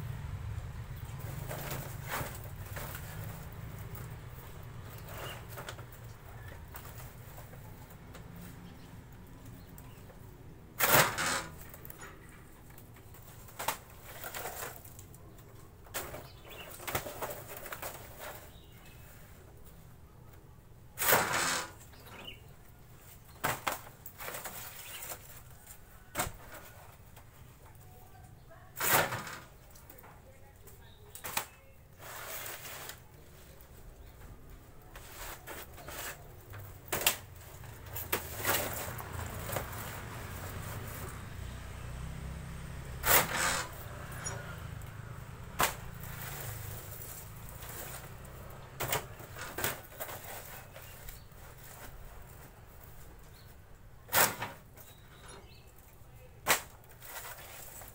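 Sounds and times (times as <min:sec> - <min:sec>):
wood veneer sheets rustling: 0:31.3 - 0:41.4, 0:45.6 - 0:55.3, 0:56.5 - 0:57.9.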